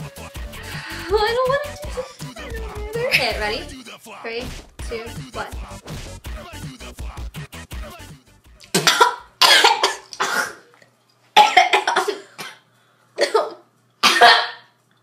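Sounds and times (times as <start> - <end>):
background music beat: 0.0 - 9.6
girls coughing and spluttering: 8.7 - 10.6, 11.4 - 12.6.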